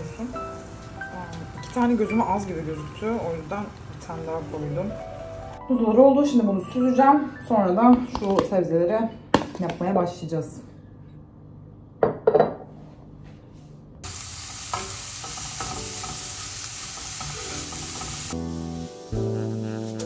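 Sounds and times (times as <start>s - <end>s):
piano music: 0.0s - 8.1s, 14.6s - 20.0s
vegetables sizzling in a frying pan: 14.0s - 19.5s.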